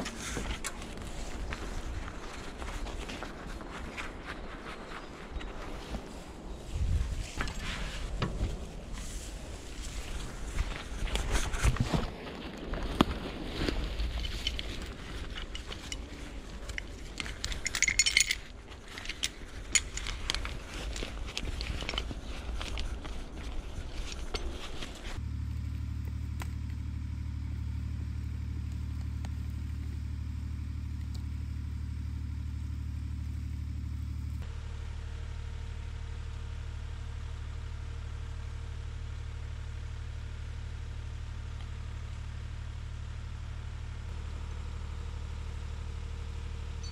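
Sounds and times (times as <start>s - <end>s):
metal chain clinking and scraping: 13.6s - 25.2s.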